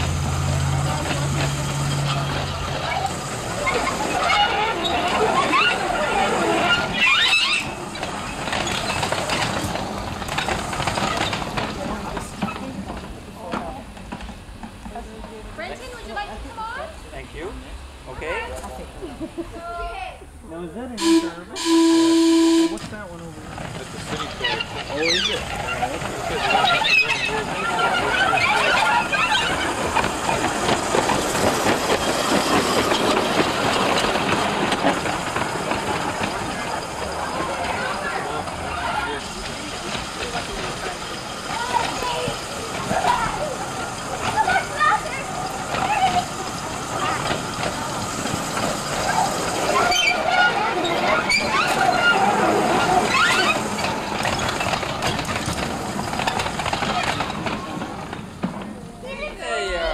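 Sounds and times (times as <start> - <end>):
people's voices: 0.0 - 59.9
wheels rumbling on rails: 0.0 - 59.9.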